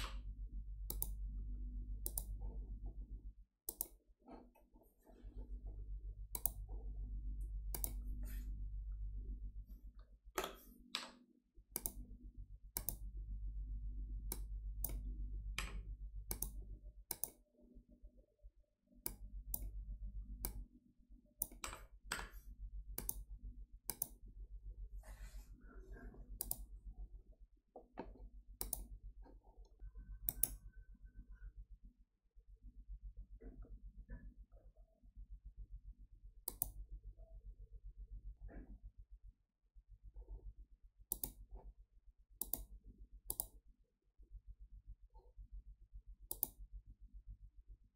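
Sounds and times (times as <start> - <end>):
low hum: 0.0 - 3.4, 5.1 - 10.3, 11.8 - 17.1, 19.1 - 20.7
mouse and keyboard clicks: 0.9 - 1.2, 2.0 - 2.4, 3.7 - 4.0, 6.3 - 6.6, 7.7 - 8.0, 12.8 - 13.0, 14.3 - 17.4, 23.0 - 23.2, 23.9 - 24.2, 28.0 - 28.9, 30.3 - 30.6, 36.5 - 36.8, 41.1 - 41.4, 42.4 - 42.7, 43.3 - 43.6, 46.3 - 46.6.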